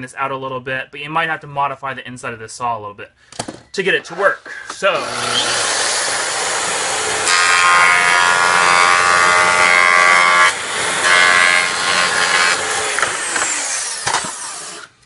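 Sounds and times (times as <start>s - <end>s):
saw cutting aluminum sheet: 4.8s - 15.0s.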